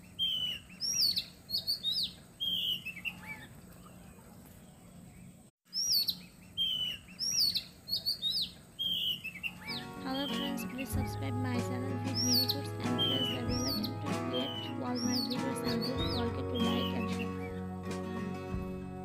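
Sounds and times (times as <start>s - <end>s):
songbirds chirping and whistling: 0.0s - 17.6s.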